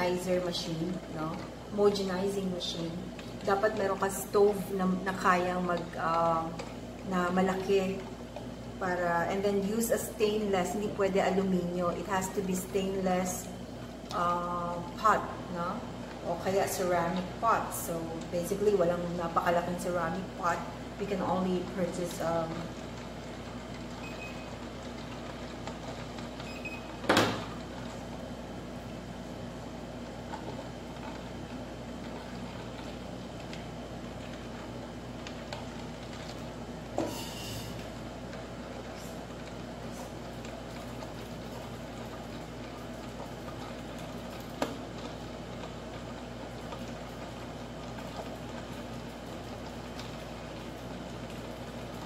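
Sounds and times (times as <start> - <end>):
steady hum: 0.0 - 52.0
cream simmering with faint bubbling: 20.3 - 26.4
short high thermometer beeps: 24.0 - 24.5, 26.4 - 26.9.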